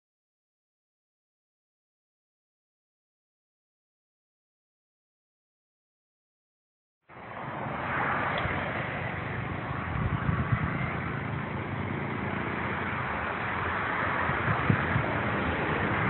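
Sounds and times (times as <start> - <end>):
low wind bumps: 7.1 - 16.0
wind on microphone: 7.5 - 16.0.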